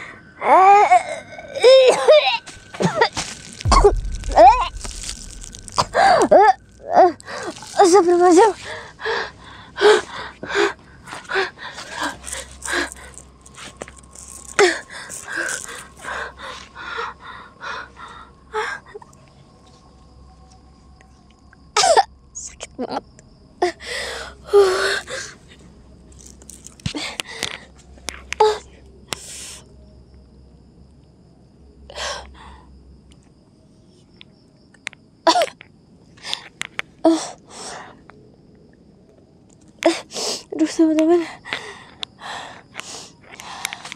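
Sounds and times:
woman panting and gasping: 0:08.5 - 0:13.2, 0:14.6 - 0:19.0, 0:41.1 - 0:43.9
woman breathing forcefully: 0:23.8 - 0:25.4.

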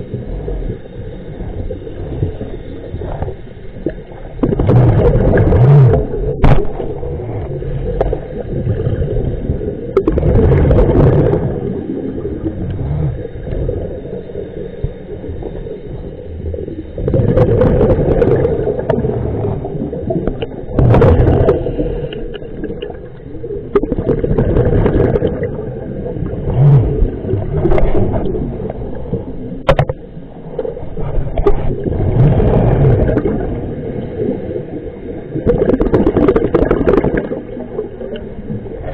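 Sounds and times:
low rumble: 0:00.0 - 0:38.9
underwater bubbles gurgling: 0:00.0 - 0:38.9
regulator breathing: 0:20.3 - 0:23.3.

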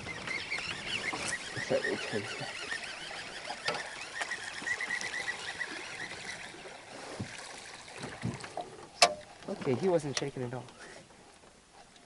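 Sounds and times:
lure splashing on water: 0:00.5 - 0:09.6.

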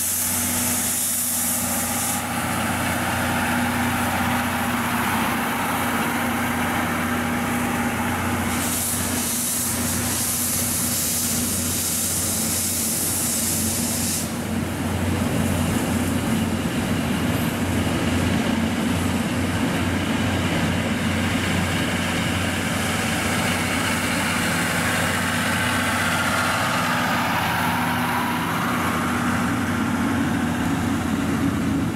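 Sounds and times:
loud hiss: 0:00.0 - 0:14.8, 0:21.2 - 0:31.4
electric locomotive passing: 0:00.0 - 0:31.9
train coaches rolling on rails: 0:00.0 - 0:31.9.

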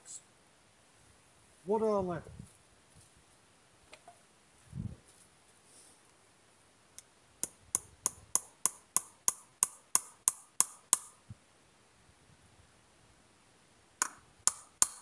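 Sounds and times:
hammer striking nail into wood: 0:07.4 - 0:11.1, 0:14.0 - 0:15.0.

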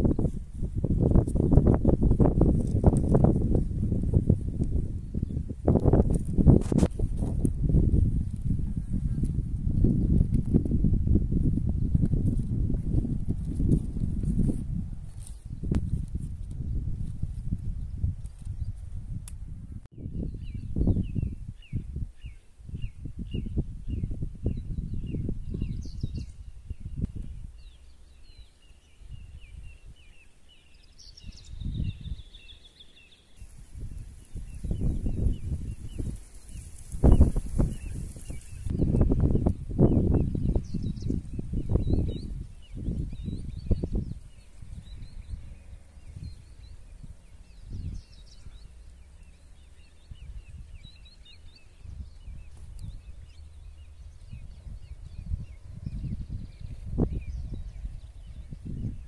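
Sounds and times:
wind rumbling on microphone: 0:00.0 - 0:59.0
small birds chirping: 0:20.0 - 0:59.0.

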